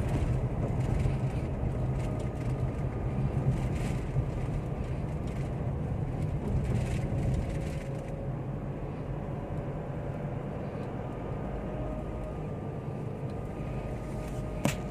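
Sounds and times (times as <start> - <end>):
car engine and road noise: 0.0 - 14.9.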